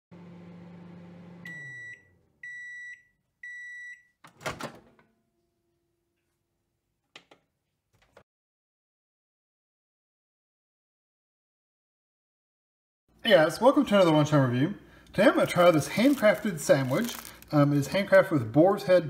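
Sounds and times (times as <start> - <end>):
microwave oven humming: 0.1 - 2.8
microwave beeps: 1.0 - 4.2.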